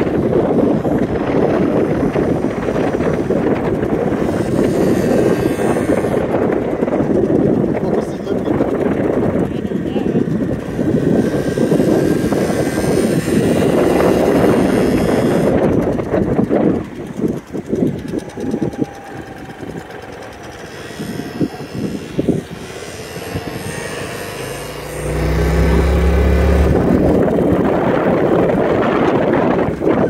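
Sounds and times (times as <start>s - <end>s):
small scooter engines buzzing: 0.0s - 30.0s
steady low rumble: 24.6s - 30.0s.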